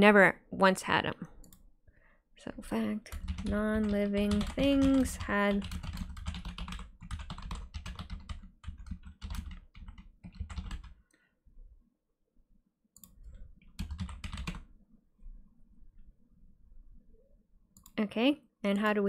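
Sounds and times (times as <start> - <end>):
typing on a computer keyboard: 3.1 - 11.0, 13.0 - 14.7.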